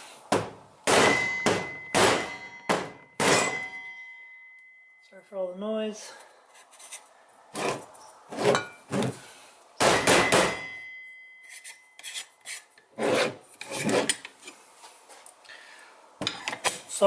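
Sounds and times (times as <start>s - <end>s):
faint ringing tone: 3.6s - 5.4s, 10.6s - 12.0s.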